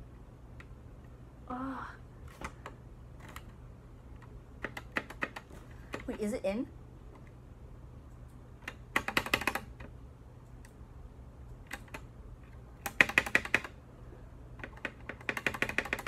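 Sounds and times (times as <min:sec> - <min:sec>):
keyboard space bar clacking: 0:12.8 - 0:13.7.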